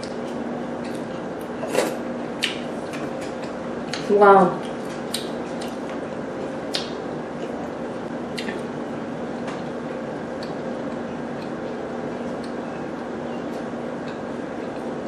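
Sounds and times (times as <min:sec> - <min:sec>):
low background hum: 0:00.0 - 0:15.0
wet clicks and squishes of eating: 0:02.4 - 0:06.1, 0:06.7 - 0:07.7, 0:08.3 - 0:08.7, 0:10.3 - 0:11.7, 0:12.3 - 0:12.6.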